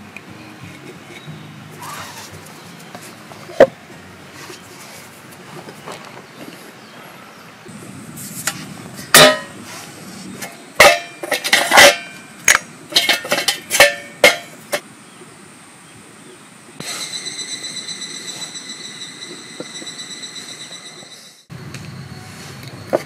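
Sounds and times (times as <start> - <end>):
metal stove parts clanking: 8.4 - 9.6, 10.4 - 14.8
high pulsing drone: 16.8 - 22.6.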